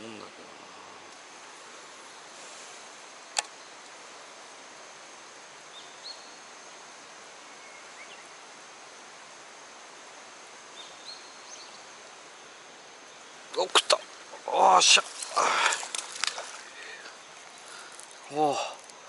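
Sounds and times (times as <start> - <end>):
fast stream rushing: 0.0 - 19.0
high insect tone: 0.0 - 19.0.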